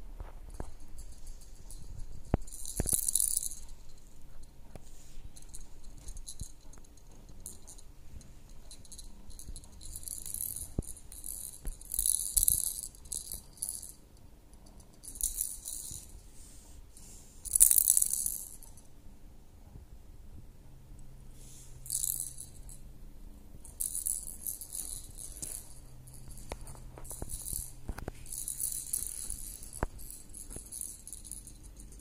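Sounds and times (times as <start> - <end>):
plastic rattle toy rattling: 0.5 - 4.2, 5.3 - 7.9, 8.5 - 16.2, 17.4 - 18.9, 21.8 - 22.8, 23.6 - 32.0.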